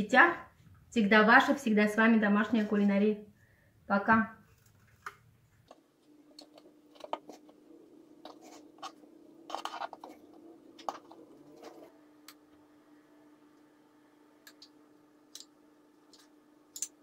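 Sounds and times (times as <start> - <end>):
faint steady hum: 0.0 - 17.0
spatula scraping metal tray: 8.2 - 11.9.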